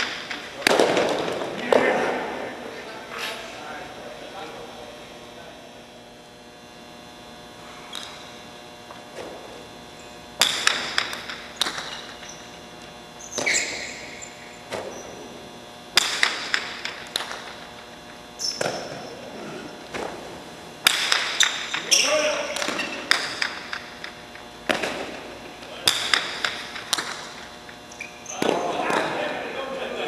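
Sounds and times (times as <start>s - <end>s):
ball cracking against wall: 10.4s - 12.3s, 15.9s - 17.7s, 19.9s - 21.9s, 22.6s - 27.4s.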